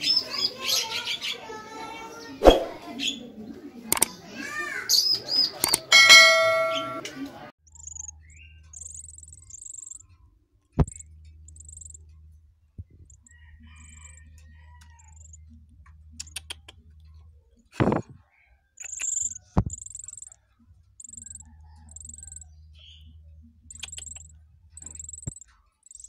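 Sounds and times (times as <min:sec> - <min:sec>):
high cheeping of nestlings: 0:07.7 - 0:10.0, 0:10.9 - 0:12.0, 0:13.1 - 0:15.4, 0:18.8 - 0:20.4, 0:21.0 - 0:23.1, 0:23.7 - 0:26.0
songbirds calling loudly: 0:07.7 - 0:10.0.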